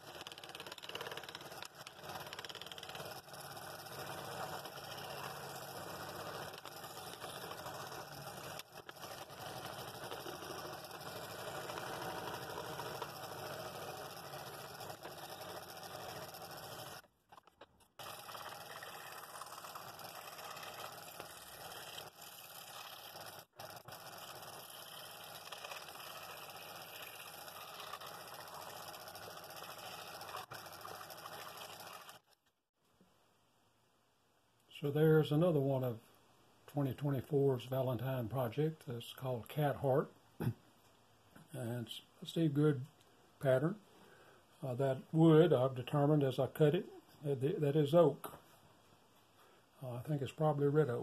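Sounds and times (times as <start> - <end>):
scroll saw cutting wood: 0.0 - 32.3.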